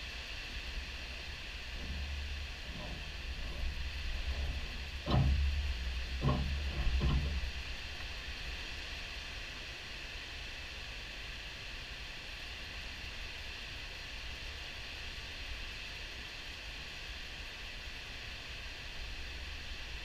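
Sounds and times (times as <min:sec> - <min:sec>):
low rumble: 0:00.0 - 0:08.8
river water roaring over dam: 0:00.0 - 0:20.0
short thumps: 0:01.7 - 0:08.1.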